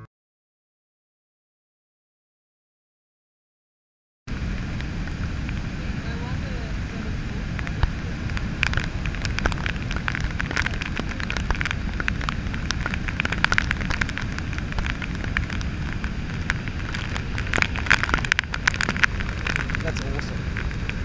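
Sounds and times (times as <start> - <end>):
waterfall rumbling: 4.3 - 21.0.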